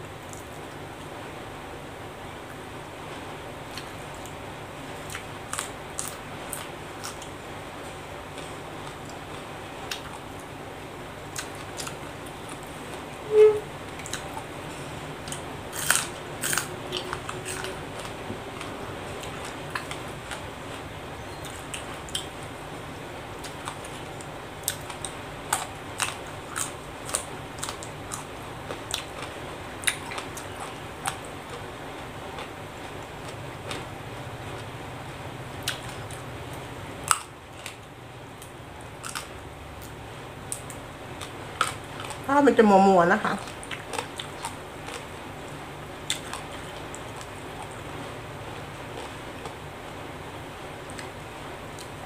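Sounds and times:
steady low hum: 0.0s - 52.0s
crunchy vegetable chewing: 5.0s - 10.5s, 11.3s - 13.1s, 13.9s - 22.5s, 23.3s - 31.7s, 35.6s - 36.3s, 37.0s - 39.9s, 40.5s - 42.3s, 43.3s - 49.7s.

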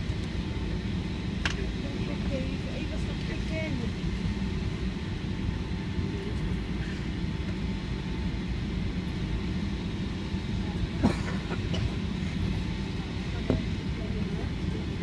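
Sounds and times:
faint steady whine: 0.0s - 15.0s
low rumble of aircraft engines: 0.0s - 15.0s.

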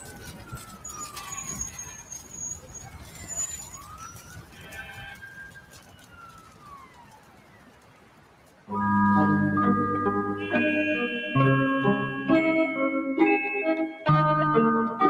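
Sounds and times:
siren wailing: 0.0s - 8.1s
faint street noise: 0.0s - 15.0s.

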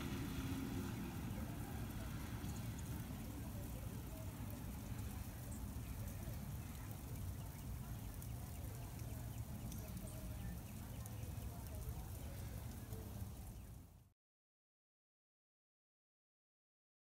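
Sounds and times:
faint scattered ticks: 2.4s - 13.8s.

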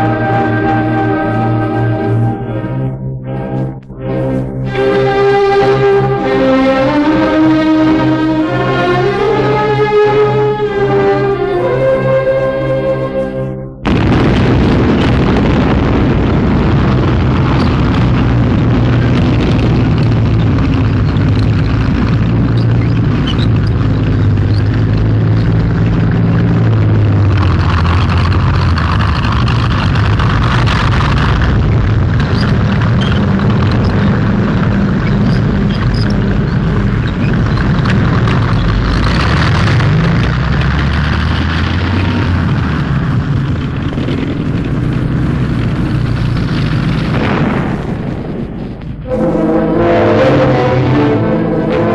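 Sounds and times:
heavy rumble of tank engines: 0.0s - 51.9s
explosions and shellfire: 13.8s - 24.4s, 42.5s - 49.6s.

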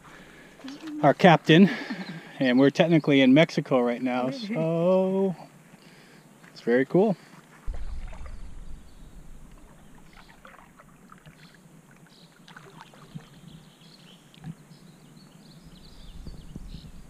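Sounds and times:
paddle splashing in water: 7.3s - 13.5s.

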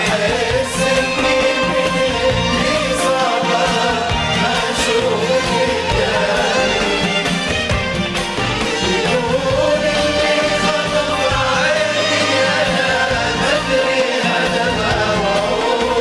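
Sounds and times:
oud: 0.0s - 16.0s
rhythmic beat: 0.0s - 16.0s
violin section melody: 0.9s - 14.4s.

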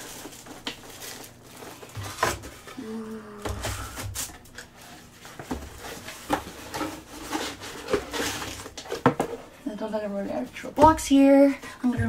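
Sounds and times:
packaging rustling: 0.0s - 2.8s.

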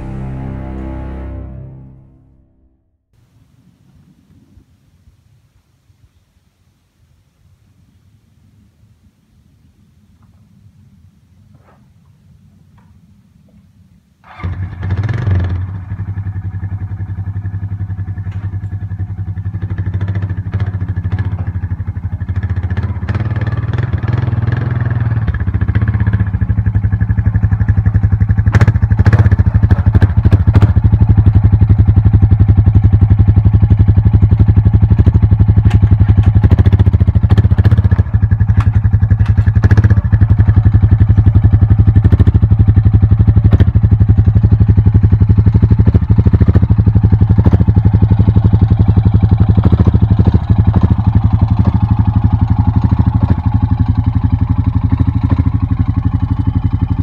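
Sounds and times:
atv engine puttering: 14.2s - 57.0s.

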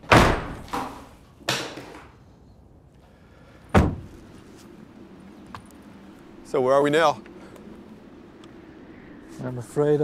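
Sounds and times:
heavy deep door thud: 0.0s - 0.9s, 3.7s - 4.3s
doors slamming: 0.0s - 2.1s, 3.7s - 4.4s.

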